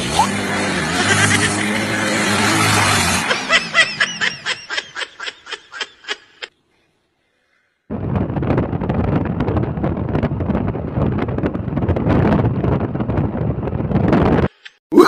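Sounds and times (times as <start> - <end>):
person laughing: 0.9 - 1.8, 2.6 - 6.5
wind buffeting microphone: 7.9 - 14.5.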